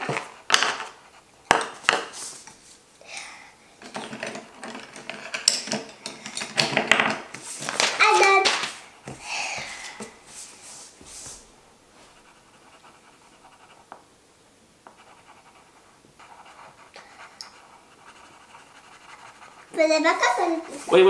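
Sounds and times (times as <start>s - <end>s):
pencil scratching on paper: 0.0s - 2.4s, 12.0s - 13.9s, 14.9s - 21.0s.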